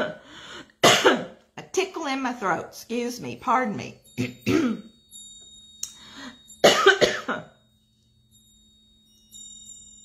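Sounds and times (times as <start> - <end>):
woman coughing: 0.0 - 0.2, 0.8 - 1.4, 4.2 - 5.0, 6.6 - 7.6.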